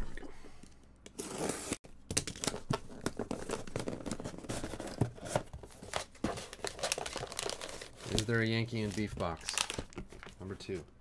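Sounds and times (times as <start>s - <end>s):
foil bag crinkling: 6.5s - 10.4s.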